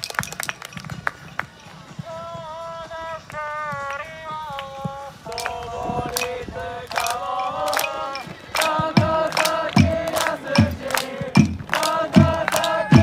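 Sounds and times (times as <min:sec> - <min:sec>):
football supporters chanting: 0:02.1 - 0:13.0
steady low beats: 0:04.8 - 0:13.0.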